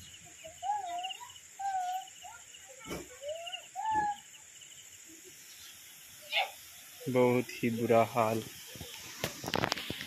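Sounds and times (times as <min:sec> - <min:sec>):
bird whistling song: 0:00.0 - 0:02.5, 0:03.2 - 0:04.4
insects droning: 0:00.0 - 0:10.0.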